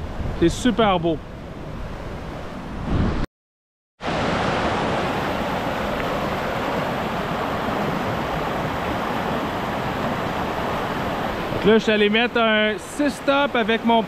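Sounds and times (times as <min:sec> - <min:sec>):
stream rushing over rocks: 0:04.0 - 0:14.0.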